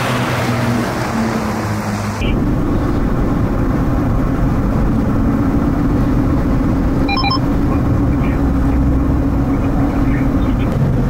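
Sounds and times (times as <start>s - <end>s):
vehicle engine and road noise: 0.0s - 11.0s
quick electronic beeps: 7.1s - 7.4s.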